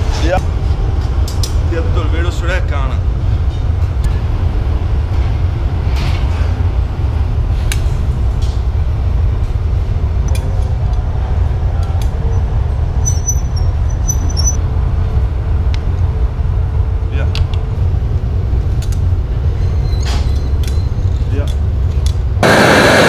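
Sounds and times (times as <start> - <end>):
furnace burners roaring: 0.0 - 23.0
blowpipe squeak: 13.0 - 14.6, 19.5 - 21.3.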